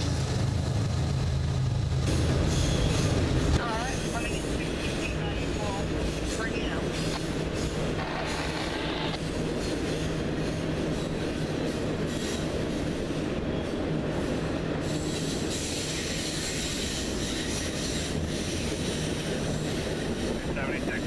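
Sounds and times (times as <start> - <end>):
freight train rumbling past: 0.0 - 21.0
wheel squeal: 2.5 - 3.2, 7.0 - 12.8, 14.8 - 20.3.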